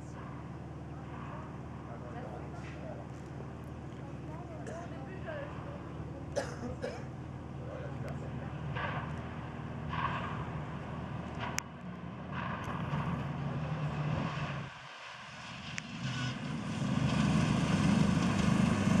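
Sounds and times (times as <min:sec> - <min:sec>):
rally car engine revving: 0:00.0 - 0:19.0
sharp crack: 0:08.6 - 0:19.0.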